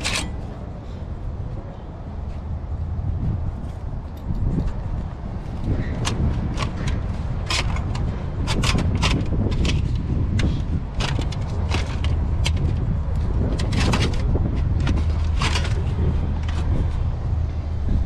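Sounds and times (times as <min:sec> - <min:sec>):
metal plates clacking and scraping: 0:00.0 - 0:00.6, 0:05.5 - 0:17.0.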